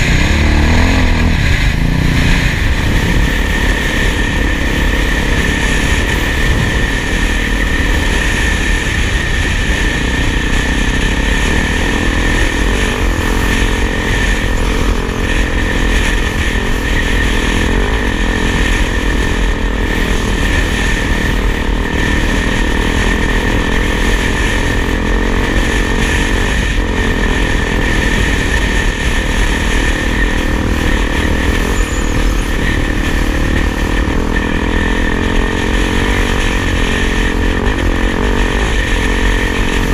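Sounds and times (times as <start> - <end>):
wind on microphone: 0.0 - 25.2
motorcycle engine cruising: 0.0 - 39.9.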